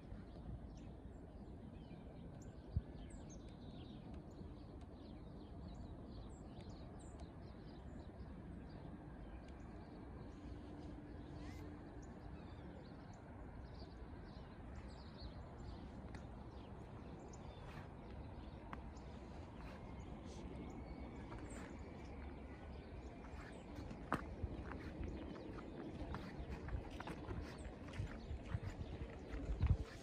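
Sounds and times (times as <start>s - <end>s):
low city rumble: 0.0s - 30.0s.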